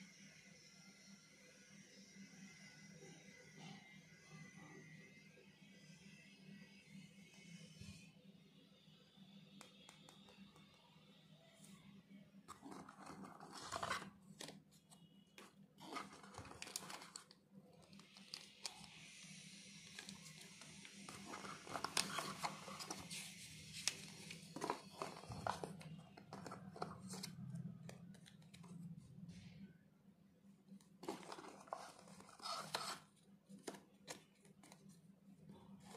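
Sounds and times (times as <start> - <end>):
cardboard rustling and scraping: 12.5 - 17.4, 19.9 - 27.4, 31.0 - 35.0.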